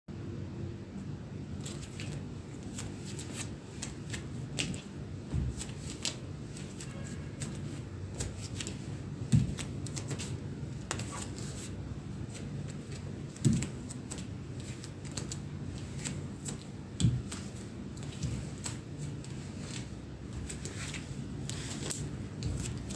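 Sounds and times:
bare footsteps on wooden floor: 4.5 - 6.0, 8.2 - 10.2, 12.7 - 14.7, 15.9 - 22.9
heavy footfall thump: 5.3 - 5.6.

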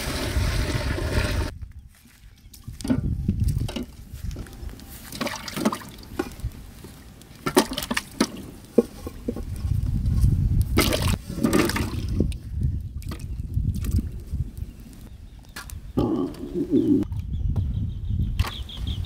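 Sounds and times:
water sloshing and splashing: 5.1 - 6.4, 7.4 - 8.4, 10.8 - 12.4.

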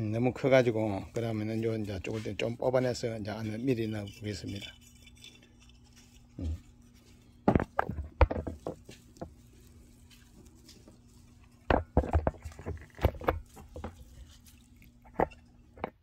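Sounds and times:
hands rustling and scraping moss: 0.0 - 15.8.

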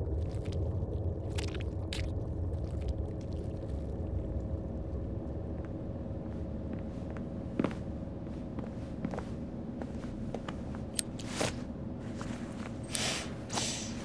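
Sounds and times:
low rumbling hum: 0.0 - 14.0
wet squelching: 1.3 - 2.1.

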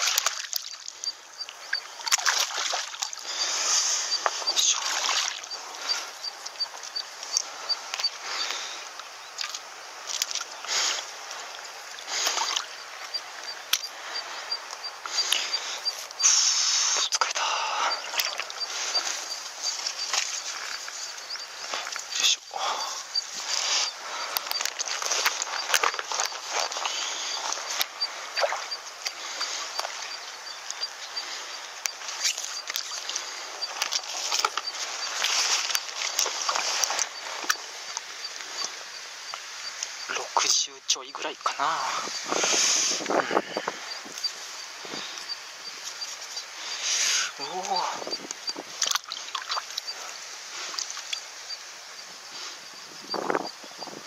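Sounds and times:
fish splashing in water: 0.0 - 1.0, 1.7 - 3.6, 4.8 - 6.0, 9.4 - 12.8, 17.2 - 20.7, 21.6 - 30.2, 48.8 - 50.1
clicks and rustles in grass: 0.0 - 54.0
steady outdoor hiss: 0.0 - 54.0.

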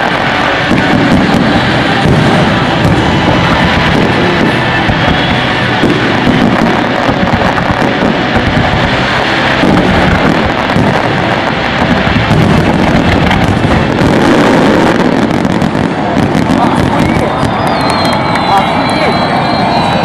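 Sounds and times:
fireworks bursting and crackling: 0.0 - 20.0.

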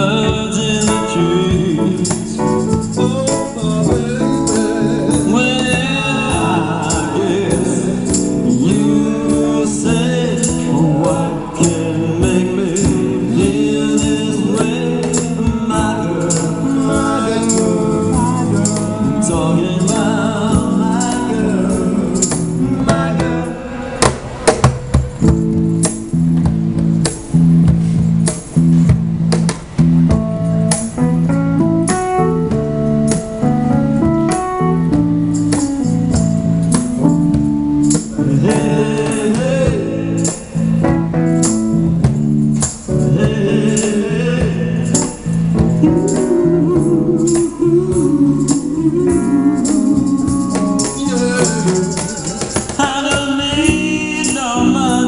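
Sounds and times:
person singing: 0.0 - 24.4, 37.9 - 41.0, 43.0 - 55.0
soul band playing: 0.0 - 55.0
tambourine shaking: 41.4 - 54.6.

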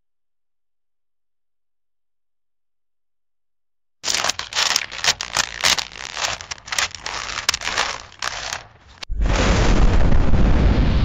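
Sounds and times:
irregular crackling and tearing noise: 4.0 - 9.1.

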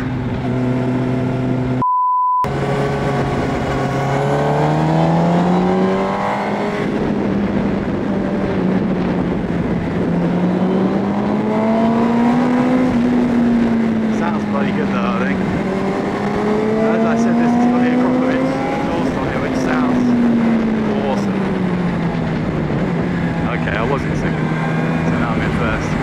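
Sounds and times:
motorcycle engine revving: 0.0 - 1.8, 2.5 - 26.0
censor bleep: 1.8 - 2.5.

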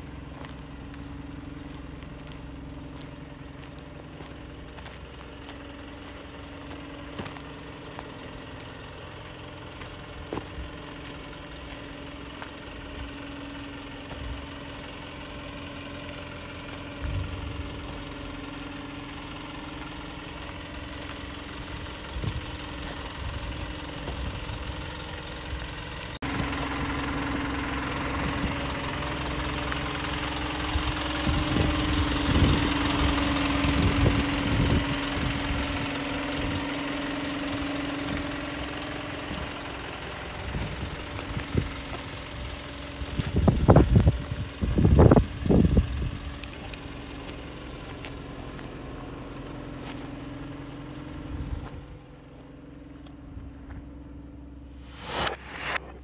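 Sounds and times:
truck engine idling: 0.0 - 56.0.

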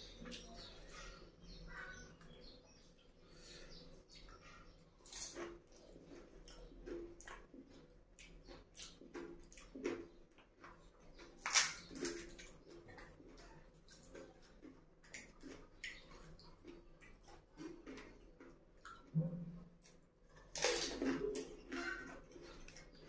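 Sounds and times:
wet squishy chewing: 0.0 - 23.0
crunching crisp shells: 5.0 - 6.7, 11.2 - 12.6, 20.4 - 23.0.

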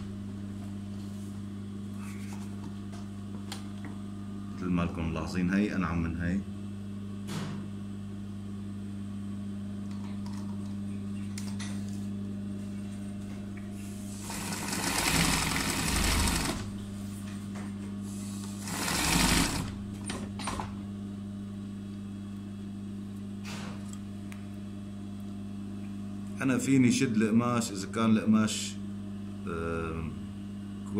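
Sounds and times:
steady low hum: 0.0 - 30.9
sewing machine stitching: 14.2 - 16.7, 18.6 - 19.8.

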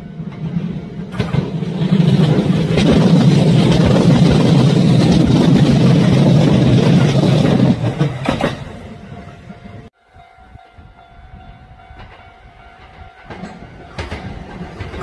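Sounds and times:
electric train passing: 0.0 - 15.0.

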